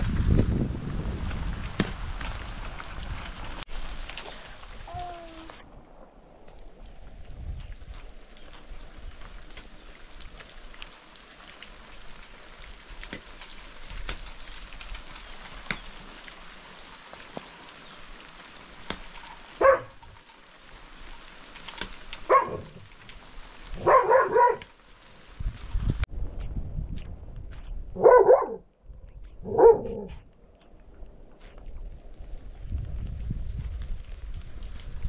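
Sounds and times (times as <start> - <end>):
rain patter: 0.0 - 35.0
dog barking: 19.6 - 20.0, 22.3 - 22.8, 23.8 - 24.7, 28.0 - 28.6, 29.4 - 30.2.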